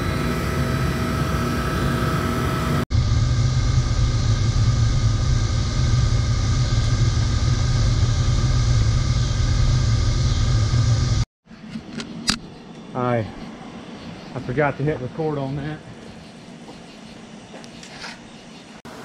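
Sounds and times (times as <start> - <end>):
oil burner roaring: 0.0 - 11.3.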